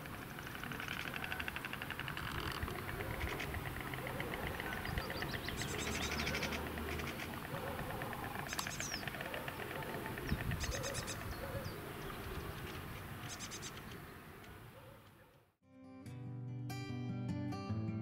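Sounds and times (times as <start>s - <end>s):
storks clattering bills: 0.0s - 11.3s
small birds chirping: 0.0s - 15.5s.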